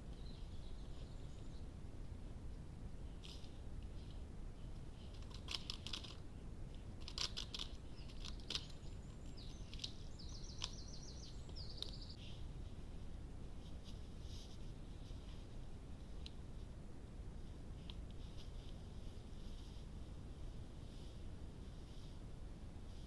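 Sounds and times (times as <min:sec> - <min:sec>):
steady low hiss: 0:00.0 - 0:23.0
bird chirps: 0:00.1 - 0:01.7, 0:07.9 - 0:12.3.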